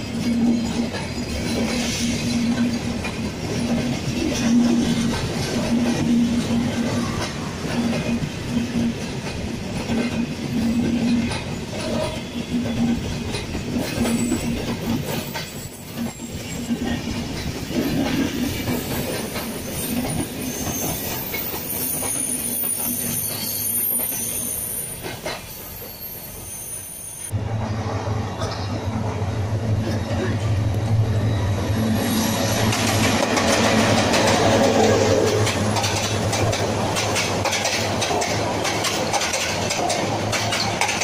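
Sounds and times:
train wheels clattering over rail joints: 0:00.0 - 0:24.2, 0:25.0 - 0:25.6, 0:32.4 - 0:41.0
high wheel squeal: 0:14.1 - 0:16.8, 0:18.7 - 0:27.4, 0:31.1 - 0:33.1.

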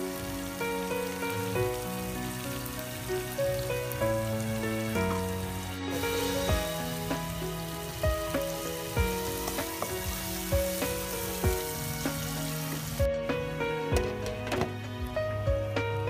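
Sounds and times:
food sizzling in hot oil: 0:00.0 - 0:14.7
background music with steady beat: 0:00.0 - 0:16.0
wooden spatula stirring in wok: 0:05.0 - 0:13.0.

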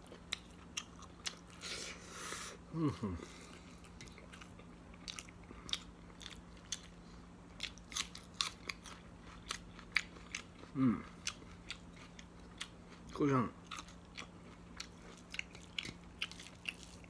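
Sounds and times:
person humming: 0:02.7 - 0:03.5, 0:10.8 - 0:11.0
wet chewing: 0:13.6 - 0:17.0.

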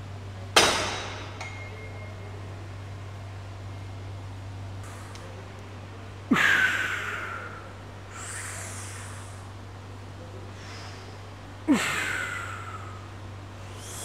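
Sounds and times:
soft breathing: 0:06.8 - 0:09.6, 0:10.4 - 0:14.0.

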